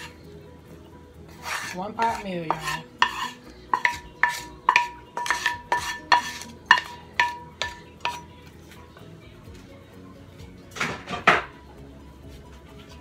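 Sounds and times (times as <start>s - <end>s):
wooden spatula knocking on skillet: 2.0s - 8.2s.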